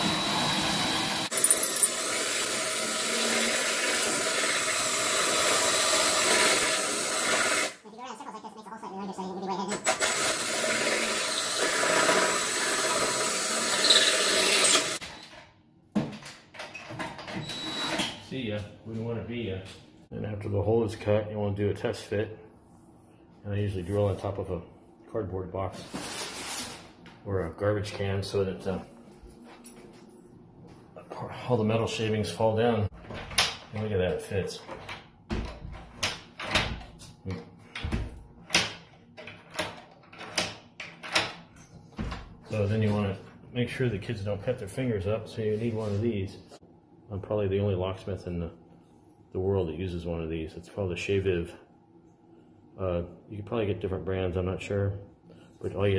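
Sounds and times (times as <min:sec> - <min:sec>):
hole saw drill cutting into steel: 0:00.0 - 0:07.8, 0:09.7 - 0:15.0.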